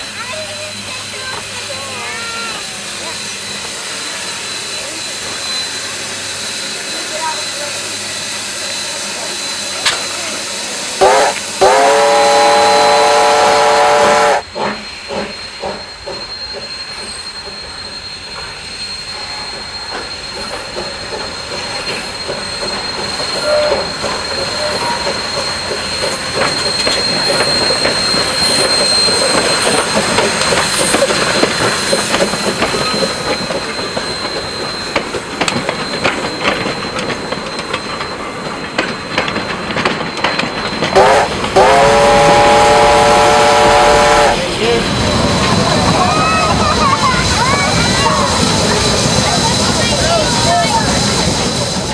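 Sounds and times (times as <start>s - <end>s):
steam hiss: 0.0s - 46.4s
steam locomotive whistle: 11.0s - 14.9s, 40.9s - 44.8s
wheels clicking on rails: 19.9s - 41.6s
locomotive exhaust beats: 19.9s - 51.9s.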